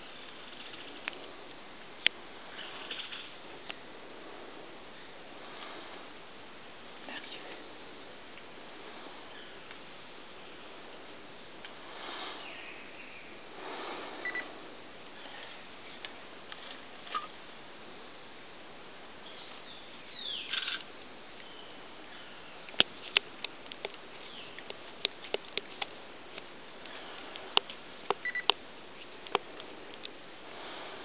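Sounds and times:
bird calls: 0:19.2 - 0:20.8.

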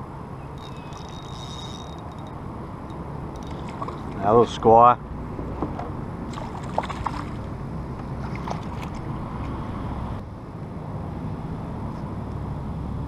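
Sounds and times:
light splashes and knocks: 0:03.4 - 0:04.2, 0:05.6 - 0:09.0
water lapping against kayak: 0:03.4 - 0:04.3, 0:06.3 - 0:09.1.

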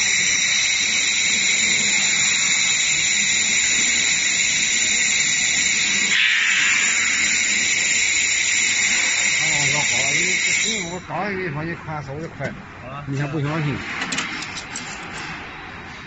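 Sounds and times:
laser welder hissing: 0:00.0 - 0:11.0.

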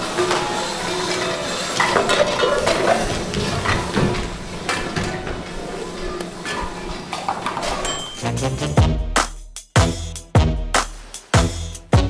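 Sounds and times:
steady noisy haze: 0:00.0 - 0:08.0
pots and pans clattering: 0:00.0 - 0:08.2.

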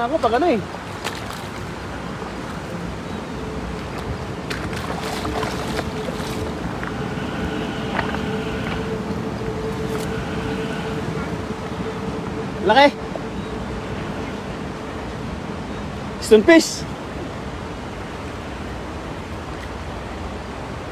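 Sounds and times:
faint steady hum: 0:00.0 - 0:20.9
river water washing: 0:00.0 - 0:20.9
wind on microphone: 0:00.7 - 0:16.2.

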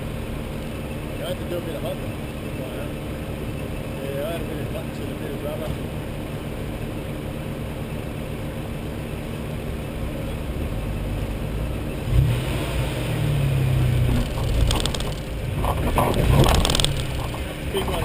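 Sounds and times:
off-road vehicle engine revving: 0:09.5 - 0:18.0
sharp knocks: 0:14.0 - 0:17.6.

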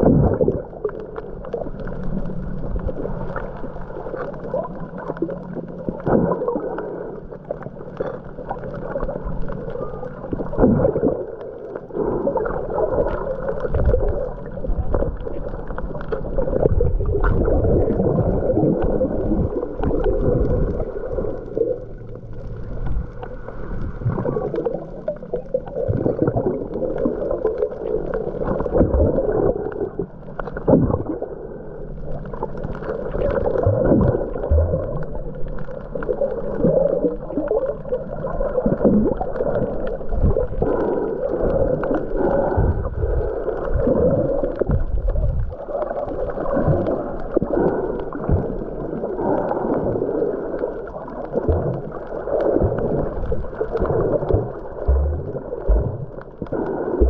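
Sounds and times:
underwater gurgling and sloshing: 0:00.0 - 0:57.0.

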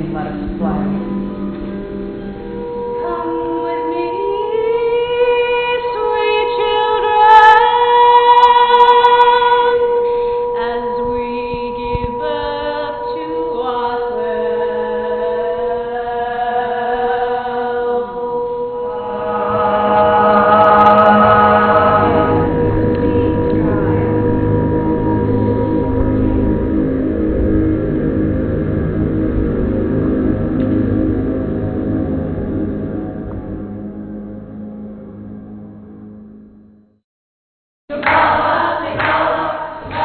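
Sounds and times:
sustained drone tone: 0:00.0 - 0:36.9
voices chanting held notes: 0:13.2 - 0:26.2, 0:37.9 - 0:40.0.

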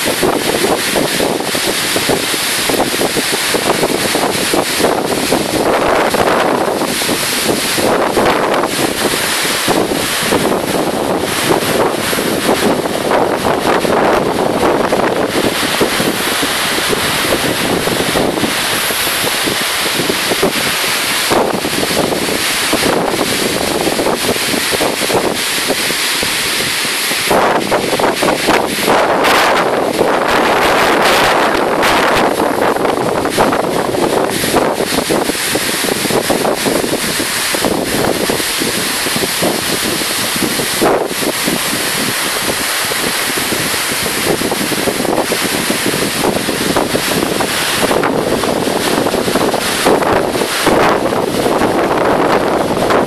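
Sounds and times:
surf breaking on rocks: 0:00.0 - 0:53.0
wind buffeting microphone: 0:00.0 - 0:53.0.

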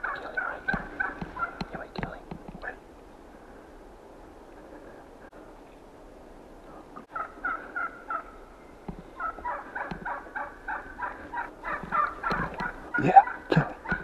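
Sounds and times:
turkey call yelps: 0:00.0 - 0:01.6, 0:07.1 - 0:08.4, 0:09.2 - 0:14.0.

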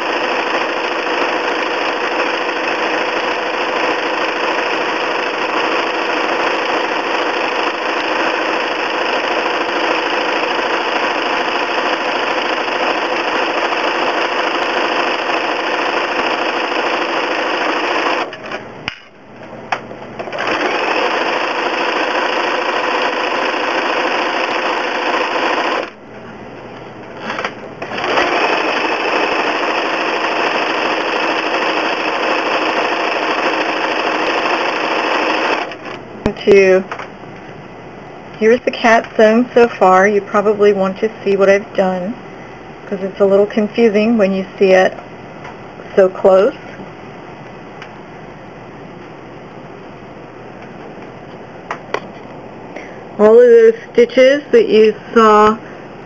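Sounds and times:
sewing machine stitching: 0:00.0 - 0:18.4, 0:20.2 - 0:26.0, 0:27.2 - 0:36.0.

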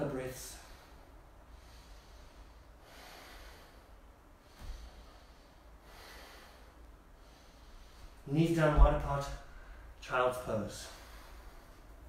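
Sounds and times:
man breathing slowly: 0:00.4 - 0:08.3, 0:09.4 - 0:10.0, 0:10.8 - 0:12.0.

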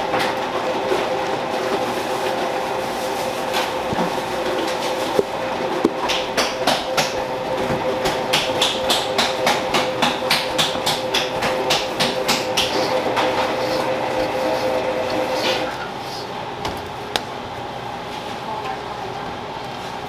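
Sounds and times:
machine hum: 0:00.0 - 0:18.1
spatula scraping a metal bowl: 0:08.8 - 0:16.3.

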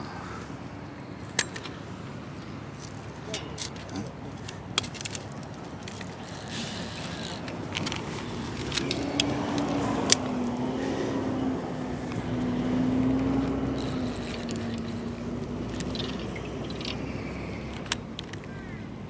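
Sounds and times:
outdoor background noise: 0:00.0 - 0:19.0
motor droning: 0:06.2 - 0:17.9.

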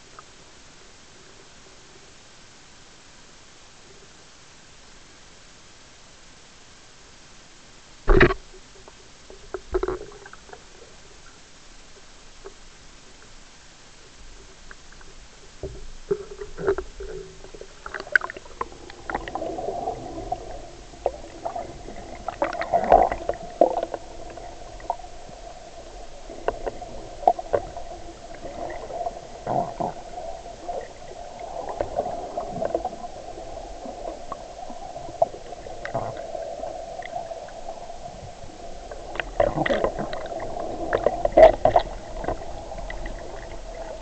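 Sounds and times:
knocks and clicks: 0:08.1 - 0:08.4
underwater river current rushing: 0:14.0 - 0:44.0.

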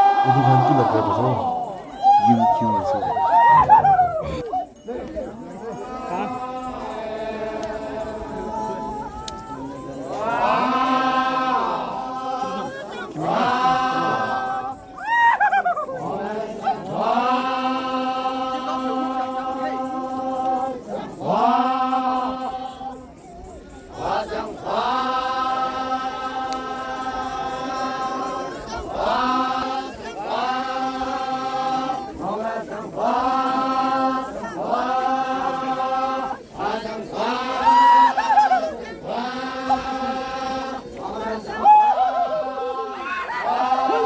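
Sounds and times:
group chanting in unison: 0:00.0 - 0:15.1, 0:15.8 - 0:44.0.

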